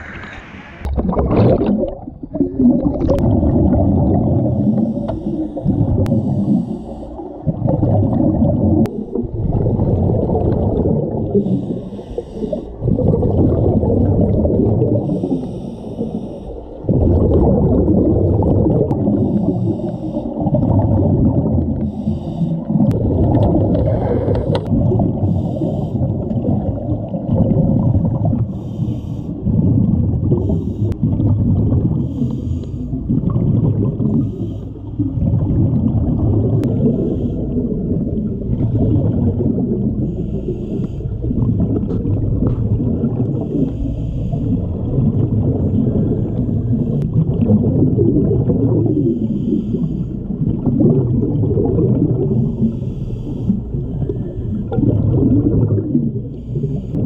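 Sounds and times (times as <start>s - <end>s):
underwater bubbling of exhaled air: 0.0s - 57.0s
regulator breathing hiss: 15.0s - 16.6s, 21.9s - 22.7s, 28.5s - 29.4s.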